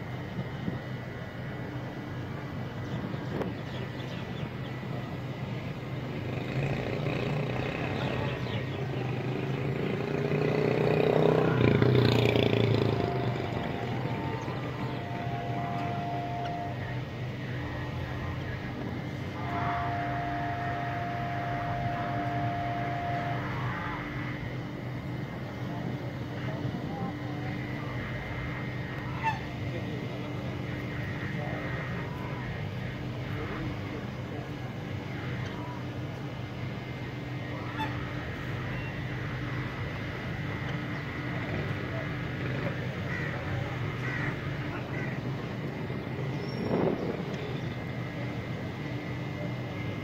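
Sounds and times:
high-pitched whine: 0.0 - 50.0
machine hum: 0.0 - 50.0
geese honking: 11.1 - 18.6, 19.3 - 24.5, 27.8 - 33.8, 36.9 - 42.0, 42.9 - 45.3.

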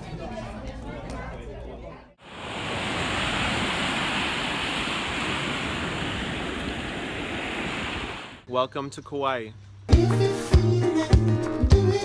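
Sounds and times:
ocean surf washing on beach: 2.2 - 8.4.

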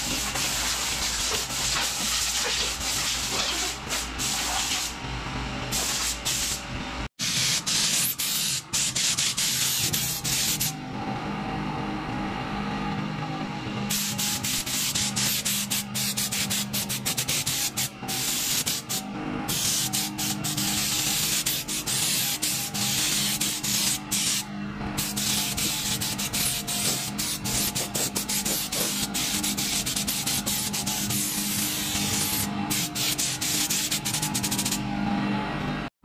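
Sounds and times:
spray gun air hissing: 5.7 - 6.6, 7.2 - 10.7, 13.9 - 24.4, 25.0 - 34.8.

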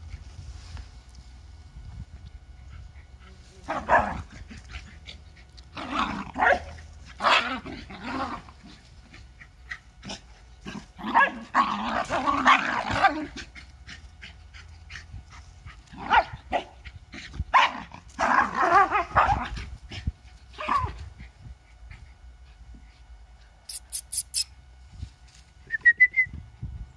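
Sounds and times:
dogs growling and barking: 3.6 - 22.3.

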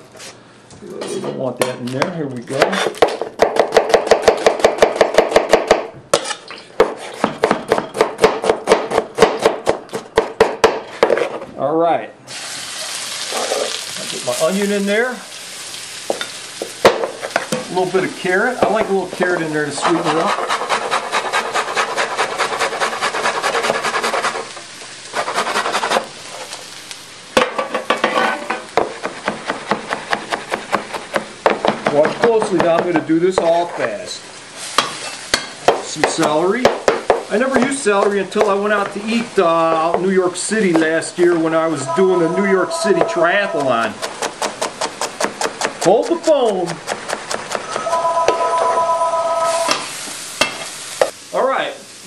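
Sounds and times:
knife chopping on plastic board: 2.6 - 5.9, 6.8 - 11.2, 28.8 - 33.5, 44.0 - 47.7
knocks and scrapes: 10.9 - 11.5, 27.9 - 28.6.

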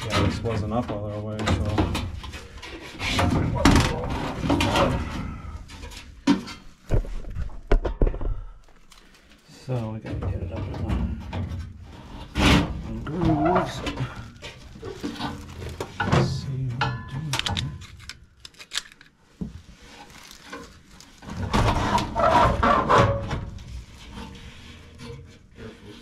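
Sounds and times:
sheet metal scraping and rubbing: 11.2 - 16.4, 21.2 - 26.0.

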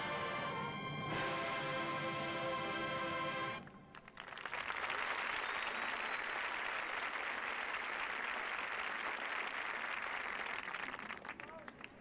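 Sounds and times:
stadium crowd applauding: 3.9 - 12.0.

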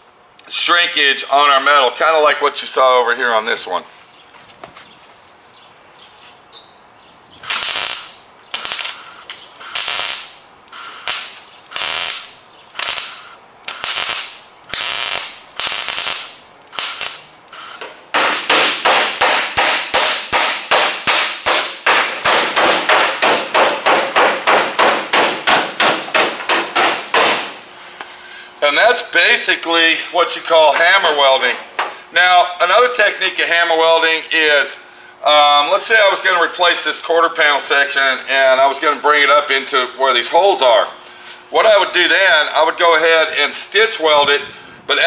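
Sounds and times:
welder short bursts: 7.4 - 17.8
hammer blows on metal: 18.2 - 27.6.

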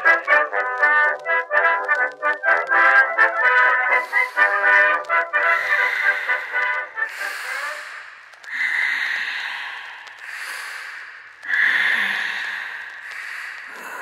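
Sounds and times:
brass-like music: 0.0 - 8.0
breathy hisses: 3.8 - 14.0.

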